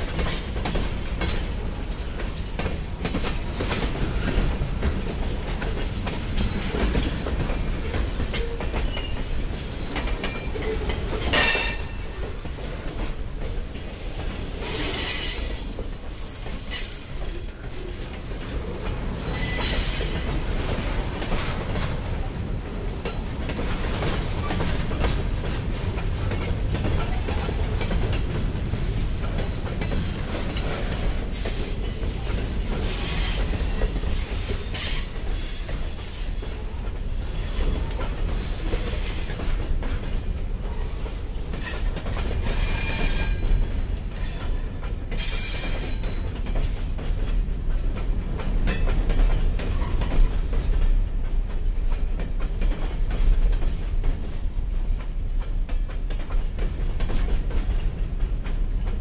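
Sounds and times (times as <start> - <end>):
steel wheels rumbling on rails: 0.0 - 59.0
high-pitched wheel squeal: 13.8 - 18.5.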